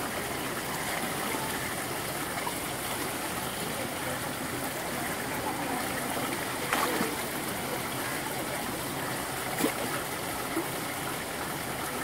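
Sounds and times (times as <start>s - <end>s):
stream flowing over rocks: 0.0s - 12.0s
splashes from wading: 6.4s - 7.5s, 9.2s - 10.7s.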